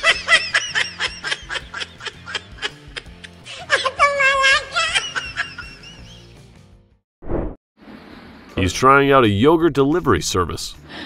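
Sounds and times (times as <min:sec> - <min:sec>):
woman laughing: 0:00.0 - 0:06.2
background music: 0:00.0 - 0:07.0.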